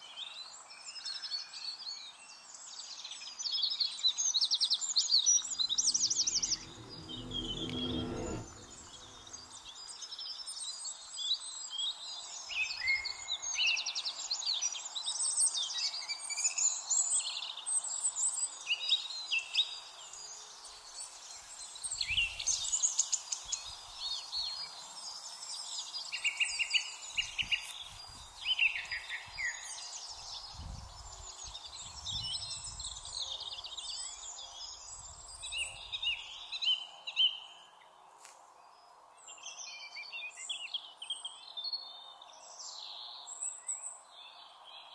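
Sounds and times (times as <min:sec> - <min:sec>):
brief low rumbles: 0:05.4 - 0:09.7.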